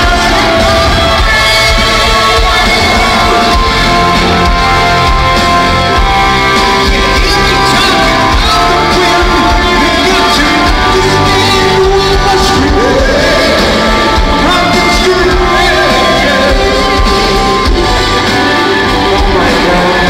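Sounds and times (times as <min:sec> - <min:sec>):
rock band playing live: 0:00.0 - 0:20.0.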